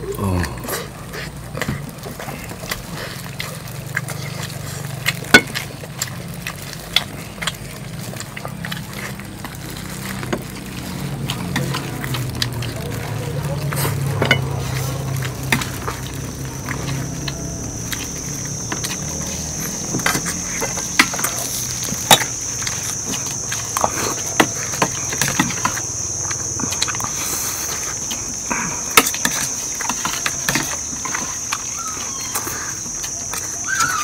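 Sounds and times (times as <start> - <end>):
high-pitched insect buzzing: 15.8 - 34.0.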